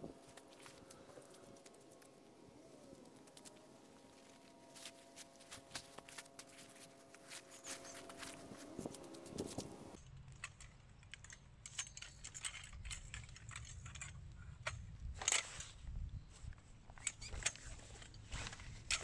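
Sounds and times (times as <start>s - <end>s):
metal poles clinking: 4.3s - 9.6s.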